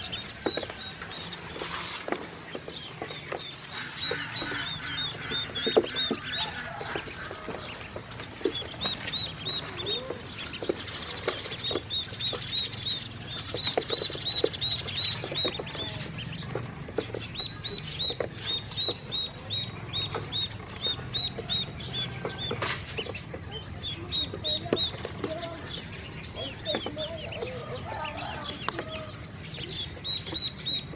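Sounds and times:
bills pecking plastic floor: 0.0s - 30.9s
ducklings peeping: 0.0s - 30.9s.

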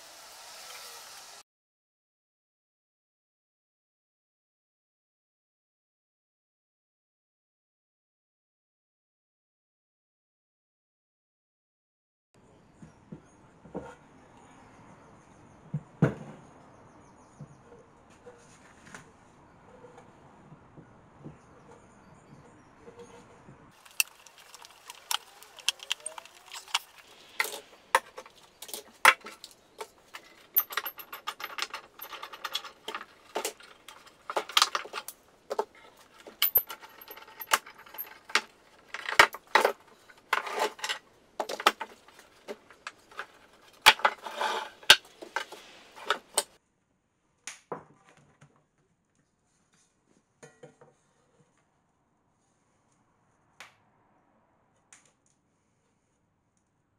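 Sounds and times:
metal clamps clicking and clinking: 23.8s - 46.5s.

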